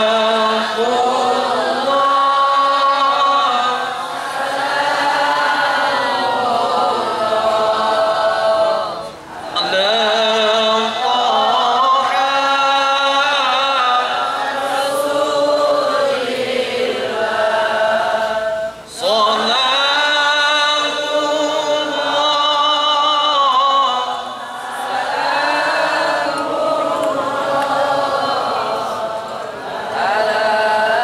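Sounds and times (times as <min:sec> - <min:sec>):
man chanting through a microphone: 0:00.0 - 0:04.1, 0:06.6 - 0:16.0, 0:17.4 - 0:24.8.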